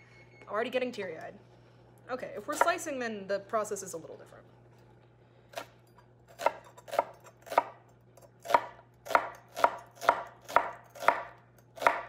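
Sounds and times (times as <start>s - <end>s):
knife chopping on wooden board: 6.3s - 7.8s, 8.4s - 12.0s.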